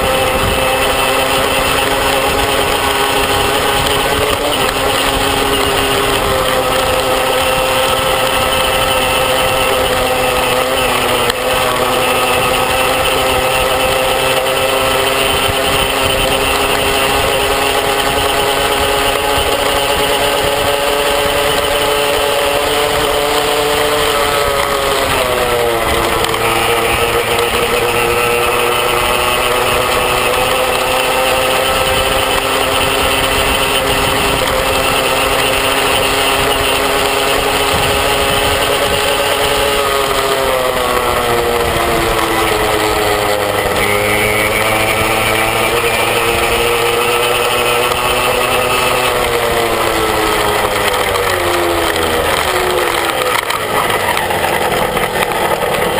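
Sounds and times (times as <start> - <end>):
small motorbike engine running: 0.0 - 55.9
wind and road noise: 0.0 - 55.9.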